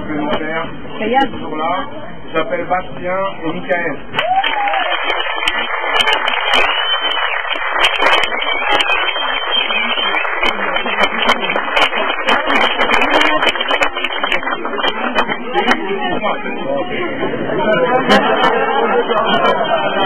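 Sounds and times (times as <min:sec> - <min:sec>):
crowd clapping and cheering: 0:04.1 - 0:16.2.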